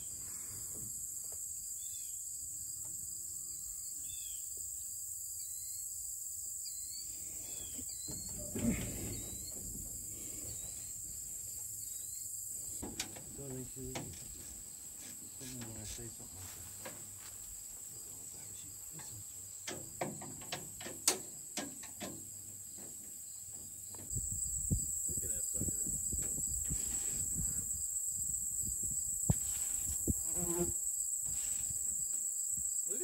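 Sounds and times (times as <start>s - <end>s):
high insect chorus: 0.0s - 33.0s.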